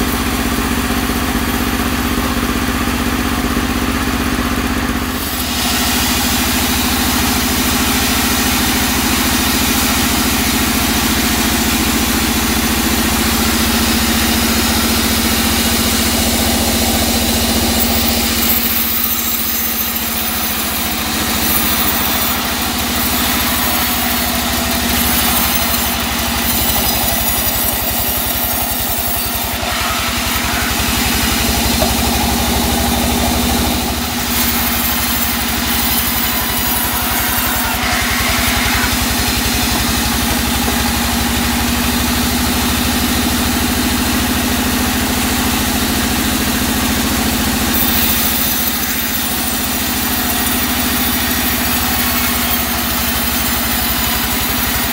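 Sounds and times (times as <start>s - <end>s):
band saw humming: 5.0s - 43.6s, 47.4s - 54.9s
saw blade cutting hiss: 5.1s - 41.8s, 47.6s - 54.9s.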